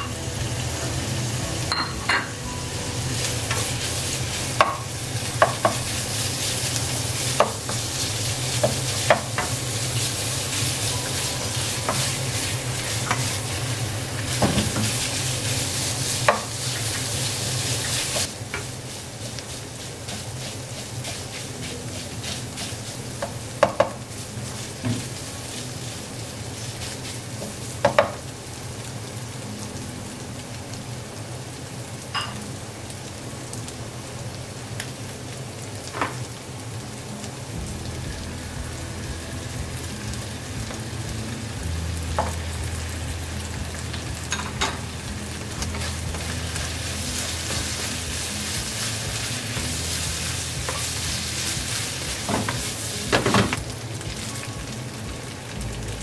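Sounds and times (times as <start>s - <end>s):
meat sizzling in a pan: 0.0s - 56.0s
spatula tapping a pan: 4.6s - 5.9s, 7.3s - 7.9s, 11.7s - 12.1s, 16.3s - 17.0s, 22.2s - 24.0s, 27.8s - 28.2s
spatula scraping a pan: 19.3s - 23.4s.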